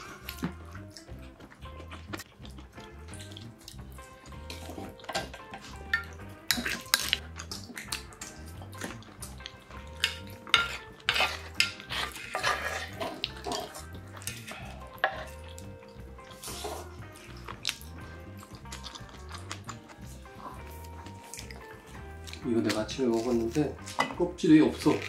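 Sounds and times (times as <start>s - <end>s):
utensils scraping pans: 10.0s - 14.4s.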